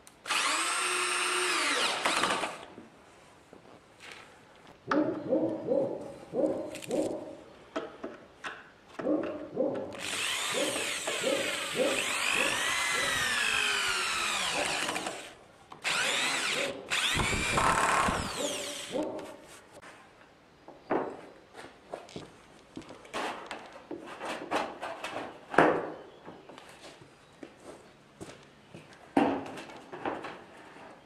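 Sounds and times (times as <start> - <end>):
cordless drill whining: 0.2 - 2.7, 10.0 - 19.0.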